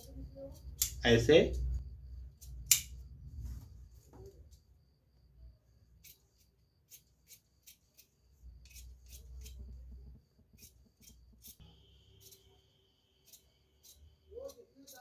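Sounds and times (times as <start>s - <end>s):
shears snipping fabric: 13.2s - 15.0s.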